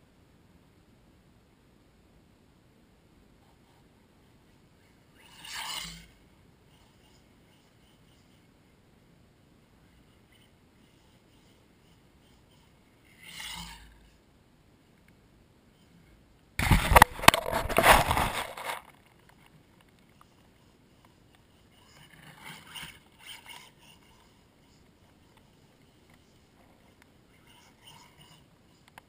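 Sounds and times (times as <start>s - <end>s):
rc car rushing and clattering: 5.2s - 6.2s, 12.4s - 14.2s, 16.6s - 19.4s, 21.7s - 29.0s
faint short rustles: 16.6s - 24.4s.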